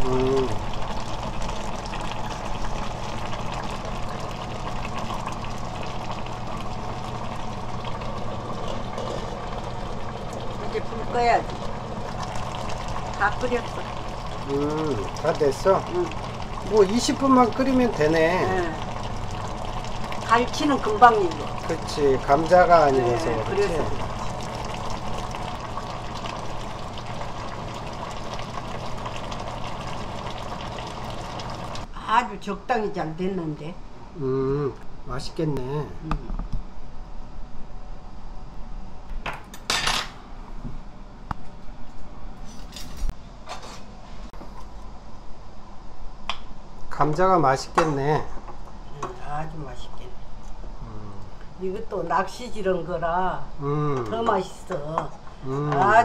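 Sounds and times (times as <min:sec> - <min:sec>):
sauce bubbling in a pot: 0:00.0 - 0:31.9
constant low hum: 0:00.0 - 0:56.0.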